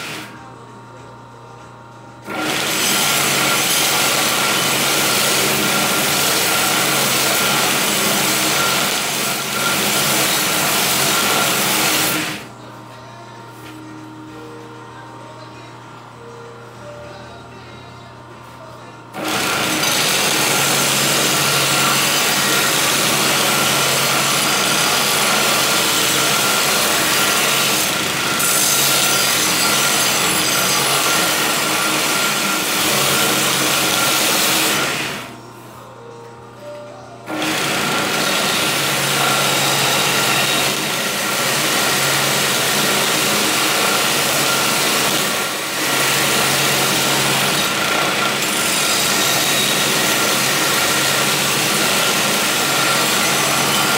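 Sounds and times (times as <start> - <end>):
belt sander grinding: 2.3 - 12.5, 19.2 - 35.3, 37.3 - 53.9.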